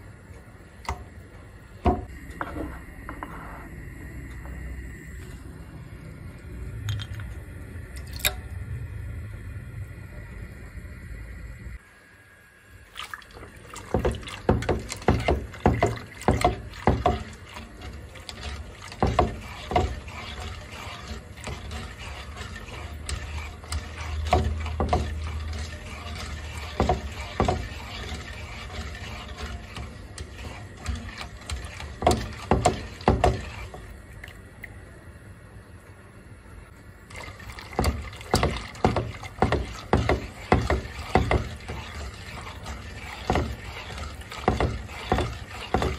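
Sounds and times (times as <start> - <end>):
liquid sloshing: 12.9 - 34.8, 37.0 - 45.9
wire whisk scraping a pot: 13.6 - 34.0, 37.1 - 45.9.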